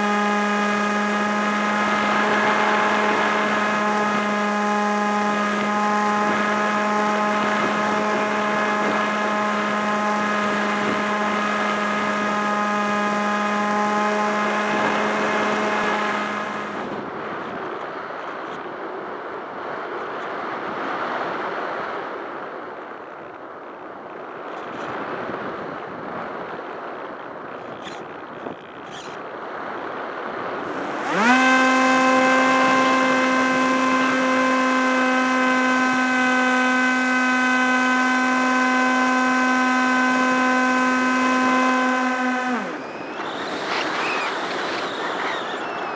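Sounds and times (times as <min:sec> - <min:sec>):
electric motor and propeller running: 0:00.0 - 0:17.1, 0:30.5 - 0:45.9
wind rushing over airframe: 0:29.6 - 0:45.9.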